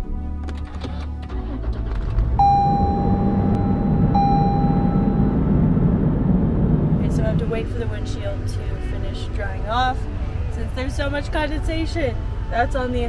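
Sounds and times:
dashboard warning chime: 0:02.4 - 0:06.3
defroster blower rushing: 0:02.4 - 0:09.0.

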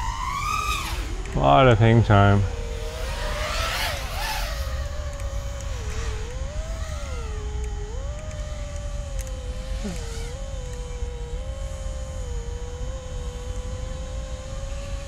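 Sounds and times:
low rumble: 0:00.0 - 0:10.0
quadcopter motors whining: 0:00.0 - 0:15.0.

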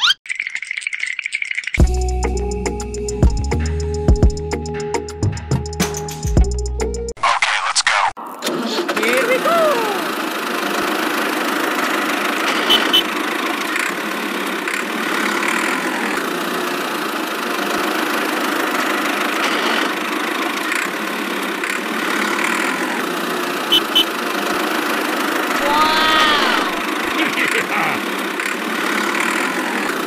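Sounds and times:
small electric motor running: 0:09.2 - 0:30.0.

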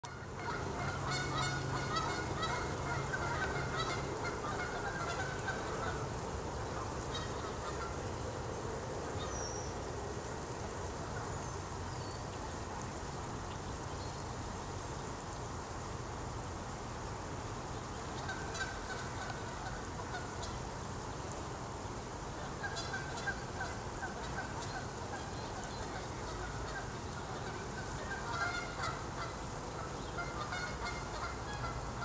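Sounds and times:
honking bird calls: 0:00.0 - 0:08.0, 0:18.0 - 0:20.6, 0:22.4 - 0:32.0
outdoor background noise: 0:00.0 - 0:32.0.

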